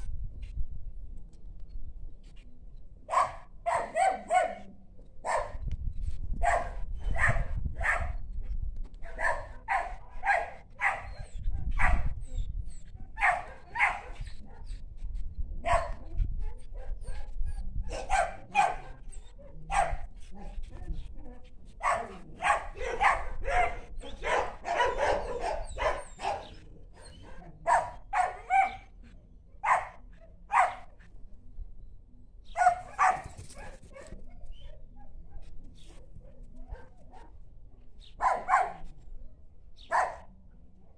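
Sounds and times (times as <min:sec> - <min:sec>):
dog barking: 0:03.1 - 0:05.6, 0:06.4 - 0:08.2, 0:09.0 - 0:11.2, 0:11.8 - 0:12.2, 0:13.2 - 0:14.7, 0:15.6 - 0:16.0, 0:17.9 - 0:20.6, 0:21.8 - 0:28.9, 0:29.6 - 0:30.9, 0:32.5 - 0:35.5, 0:36.2 - 0:37.4, 0:38.2 - 0:38.9, 0:39.8 - 0:40.3.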